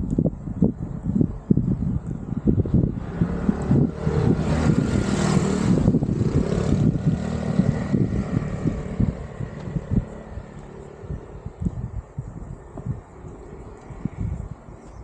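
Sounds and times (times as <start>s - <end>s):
wind buffeting microphone: 0.0s - 15.0s
vehicle passing by: 2.3s - 11.6s.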